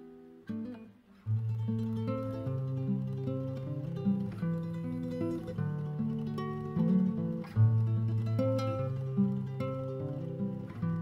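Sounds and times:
acoustic guitar playing chords: 0:00.0 - 0:11.0.

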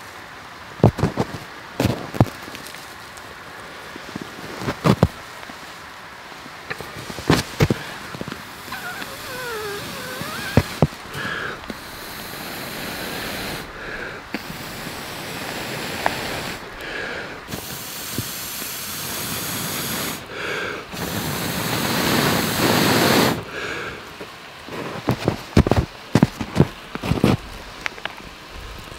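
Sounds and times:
person blowing into tinder: 0:06.7 - 0:23.5.

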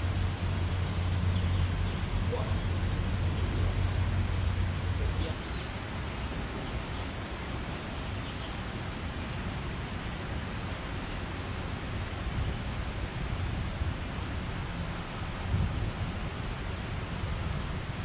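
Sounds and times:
wind on microphone: 0:11.6 - 0:18.0.

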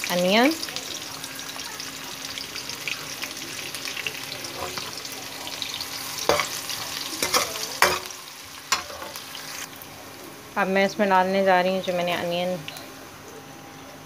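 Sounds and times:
onions sizzling in oil: 0:00.0 - 0:13.9
metal spoon stirring: 0:04.4 - 0:05.0, 0:07.2 - 0:08.1.

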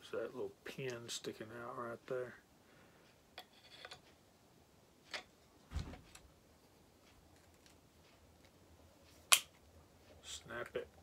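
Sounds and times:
dull knock: 0:05.7 - 0:06.1.

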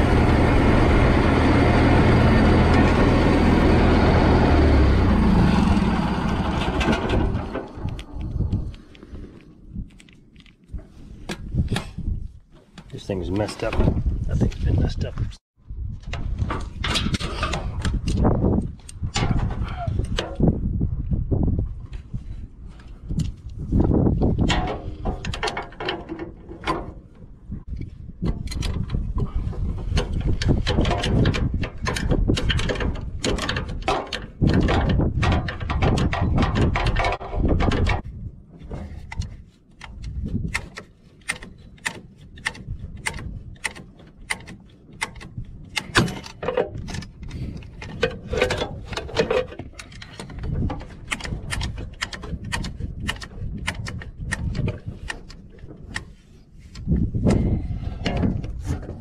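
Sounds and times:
low rumble: 0:00.0 - 0:12.5
sharp metallic clicks and knocks: 0:24.3 - 0:38.1, 0:38.8 - 0:59.0.

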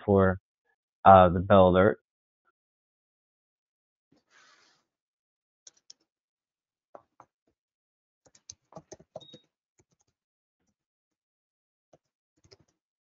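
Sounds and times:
faint keyboard typing: 0:08.3 - 0:10.1, 0:12.4 - 0:12.8.

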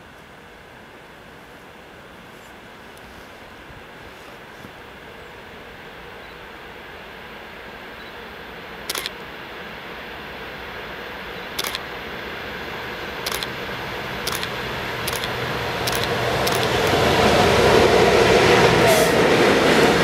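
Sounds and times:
train rumble: 0:00.0 - 0:20.0
sharp metallic clicks: 0:08.9 - 0:09.2, 0:11.6 - 0:11.9, 0:13.2 - 0:17.0.

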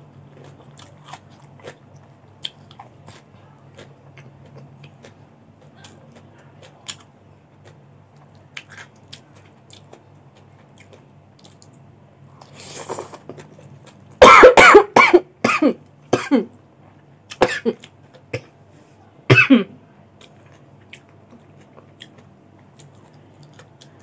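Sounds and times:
quiet chewing with crunches: 0:00.0 - 0:14.2, 0:20.1 - 0:24.0
person coughing hard: 0:14.2 - 0:16.5, 0:17.4 - 0:17.8, 0:19.3 - 0:19.8.

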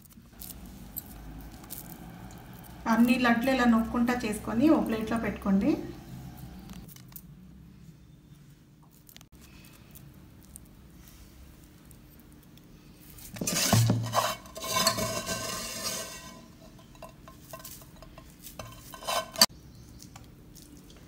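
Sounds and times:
metal vessels scraping and clattering: 0:13.3 - 0:19.5.

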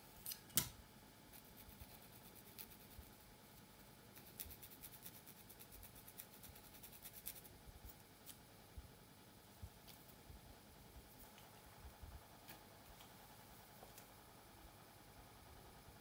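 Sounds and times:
fingernails scratching scalp: 0:01.3 - 0:03.1, 0:04.2 - 0:07.5.

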